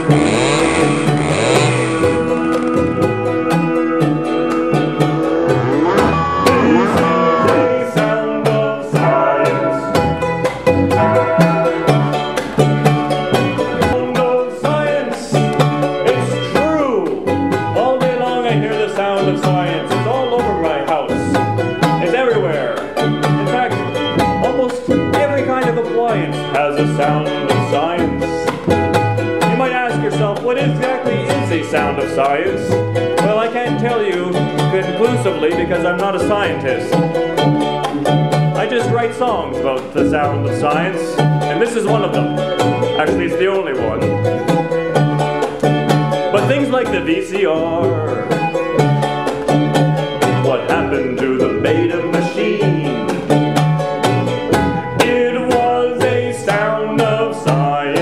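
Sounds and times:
bass line: 0:00.0 - 0:58.0
live band music: 0:00.0 - 0:58.0
plucked string instruments: 0:00.0 - 0:58.0
steady beat: 0:01.0 - 0:08.4.

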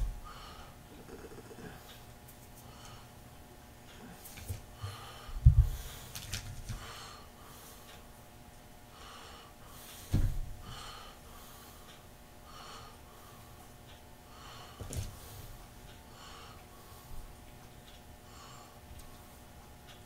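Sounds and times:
person breathing heavily: 0:00.0 - 0:02.0, 0:03.9 - 0:08.0, 0:08.9 - 0:13.6, 0:14.2 - 0:17.4, 0:18.2 - 0:18.9
dull thumps: 0:10.1 - 0:10.6.

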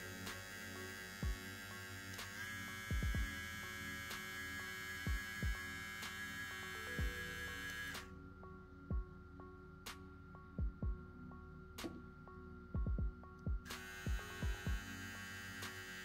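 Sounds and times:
hair trimmer motor hum: 0:00.0 - 0:08.1, 0:13.7 - 0:16.0.

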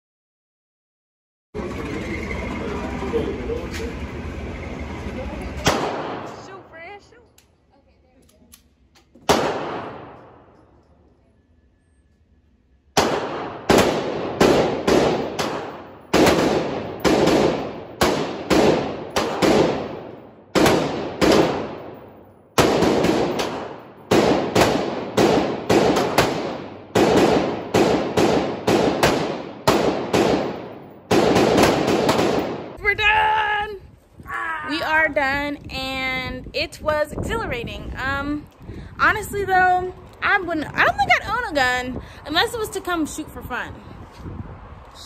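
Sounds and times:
gunshots ringing off walls: 0:05.6 - 0:06.6, 0:09.2 - 0:10.6, 0:13.0 - 0:32.8.

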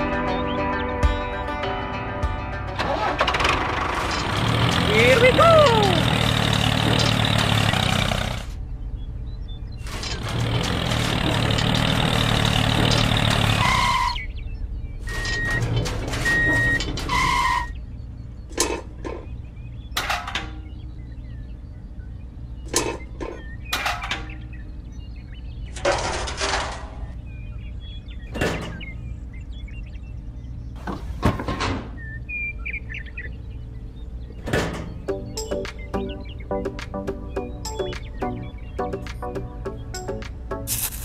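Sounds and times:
knocks and scrapes: 0:25.7 - 0:27.1.

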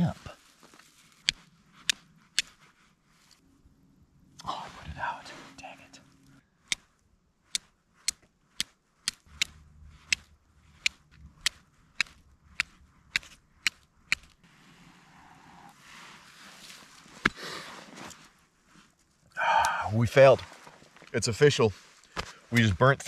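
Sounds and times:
flint striking steel: 0:07.5 - 0:14.4.

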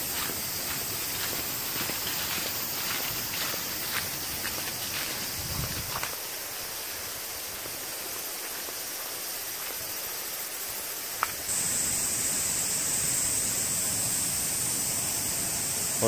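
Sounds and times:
stream water rushing: 0:00.0 - 0:09.5
higher hiss: 0:00.0 - 0:16.0.

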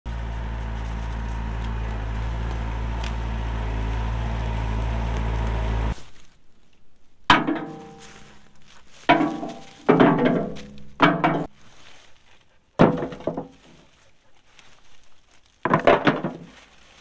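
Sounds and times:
tractor diesel engine running: 0:00.0 - 0:06.1
rock clanking in steel bucket: 0:09.0 - 0:11.5.

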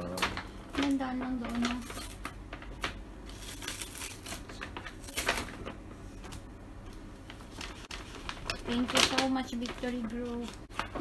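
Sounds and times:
paper bag rustling and crinkling: 0:00.0 - 0:06.4, 0:07.2 - 0:11.0.

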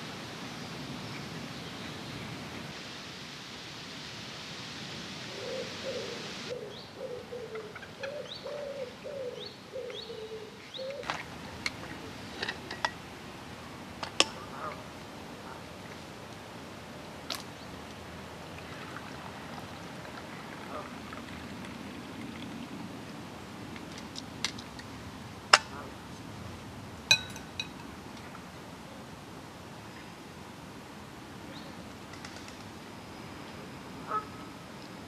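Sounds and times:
pigeon cooing: 0:05.3 - 0:11.2
small birds chirping: 0:05.4 - 0:11.1.

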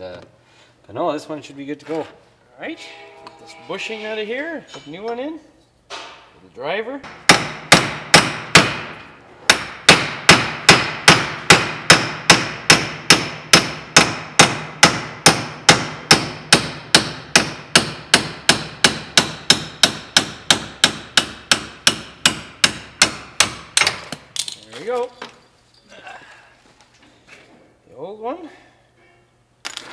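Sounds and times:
hammer striking steel driver: 0:07.1 - 0:24.1.

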